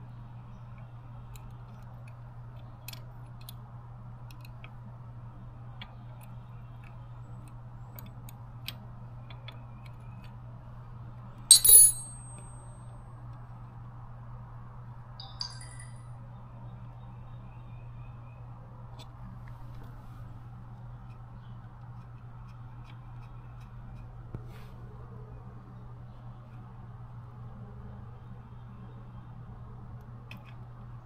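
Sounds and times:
wrench clinking with high ring: 11.5s - 12.8s, 15.2s - 16.0s.

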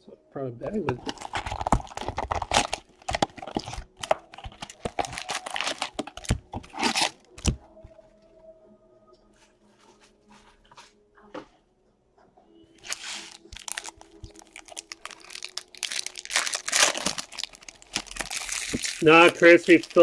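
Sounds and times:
foil packs crinkling: 0.9s - 7.6s, 12.8s - 20.0s
cardboard box tearing: 1.0s - 7.5s, 16.2s - 19.4s.

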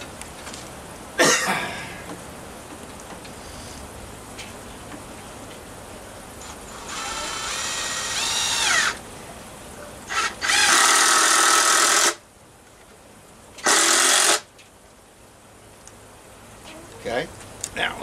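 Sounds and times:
cordless drill driving screws: 6.4s - 9.0s, 10.1s - 12.2s, 13.6s - 14.5s.

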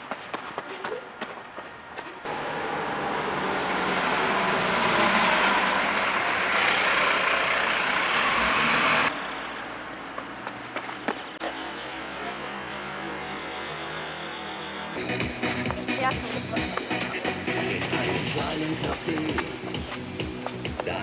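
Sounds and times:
heavy vehicle passing: 2.2s - 20.8s.

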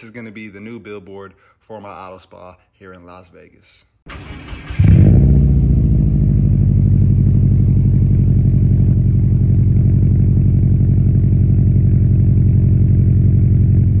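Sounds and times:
car engine idling: 5.4s - 14.0s.

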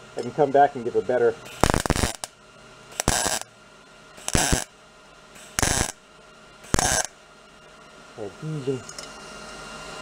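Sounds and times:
welder arcing: 1.5s - 3.5s, 4.2s - 4.7s, 5.4s - 6.0s, 6.6s - 7.2s.

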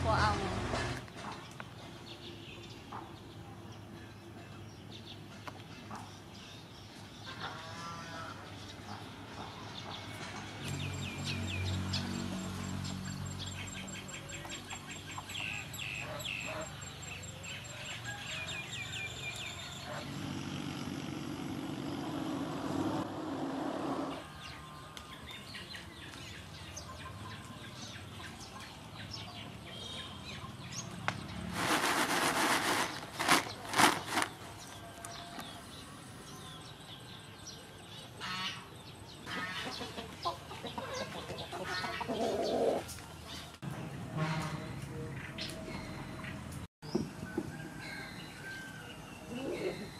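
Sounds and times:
small birds chirping: 1.1s - 22.5s
rustling with wing flaps: 31.5s - 34.5s
chickens clucking: 39.3s - 43.0s.

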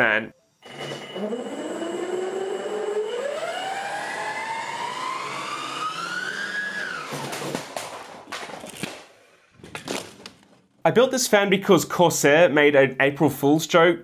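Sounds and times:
motor whine rising in pitch: 0.6s - 7.4s
fan knocking over: 7.0s - 8.6s.

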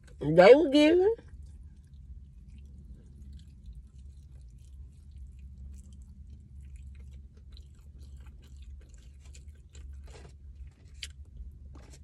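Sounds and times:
steady low hum: 0.0s - 12.0s
chewing crispy fried chicken: 1.2s - 12.0s.

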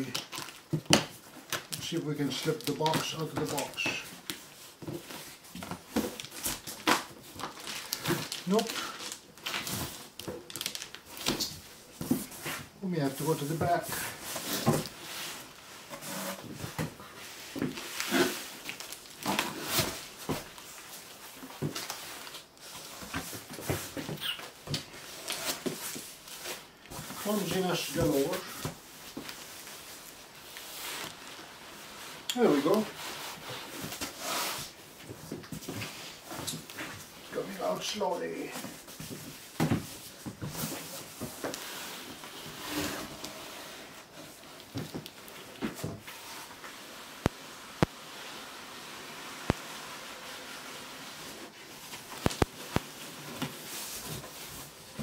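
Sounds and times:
cardboard boxes scraping: 11.9s - 24.4s, 38.4s - 47.0s, 48.0s - 55.0s.

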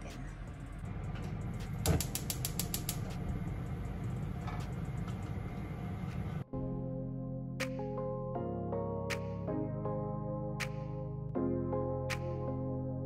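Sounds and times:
music: 0.0s - 5.3s, 6.1s - 13.0s
low hum: 0.0s - 6.4s
stove igniter clicking: 1.7s - 3.3s.

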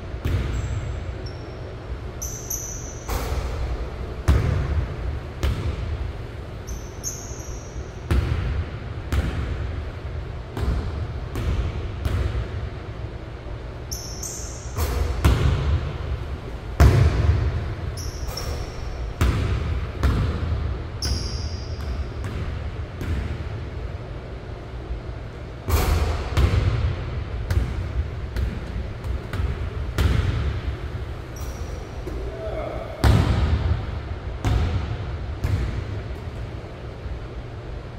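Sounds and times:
sneakers squeaking: 0.2s - 8.5s, 13.8s - 23.4s, 27.5s - 33.8s
basketball bouncing on wood floor: 16.8s - 23.4s, 27.5s - 30.7s, 34.4s - 35.9s.

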